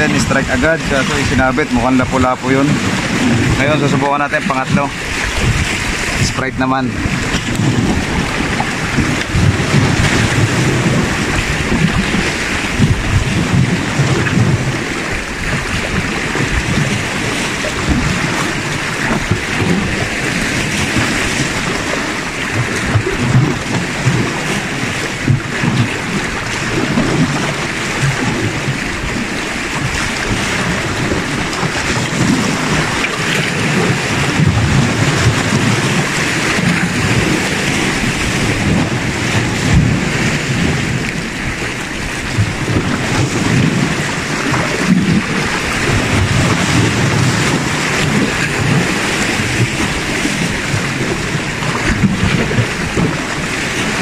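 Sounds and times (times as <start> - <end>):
waves splashing against rocks: 0.0 - 54.0
wind buffeting microphone: 0.0 - 54.0.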